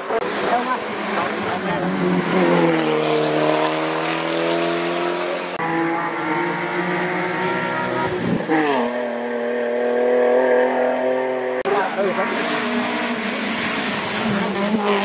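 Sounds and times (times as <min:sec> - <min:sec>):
car rushing past: 0:00.0 - 0:15.0
race car engines at high revs: 0:00.0 - 0:15.0.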